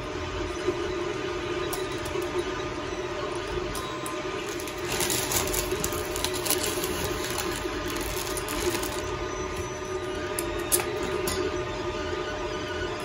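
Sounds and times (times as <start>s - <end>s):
printer motors humming: 0.0s - 13.0s
plastic bag rustling: 4.4s - 9.2s.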